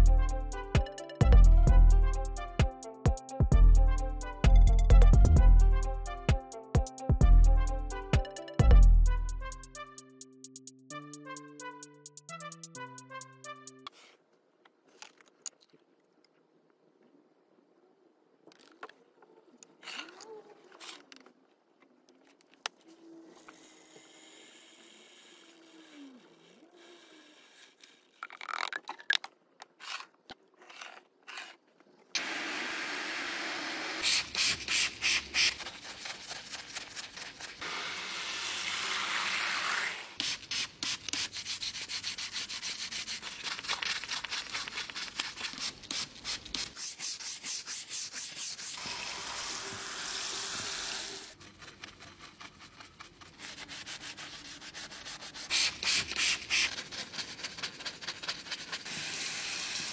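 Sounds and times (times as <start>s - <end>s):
stiff brush scrubbing engine parts: 29.6s - 32.1s, 34.0s - 37.9s, 38.6s - 49.9s, 51.2s - 59.9s.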